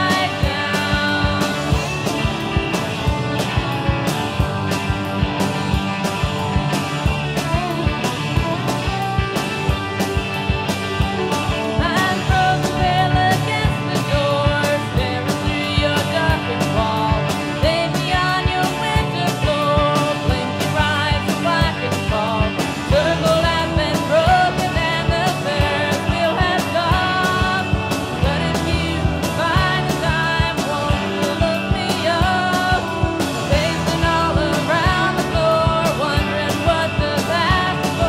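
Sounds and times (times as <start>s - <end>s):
person singing: 0.0s - 1.9s, 11.7s - 38.0s
indie rock song: 0.0s - 38.0s.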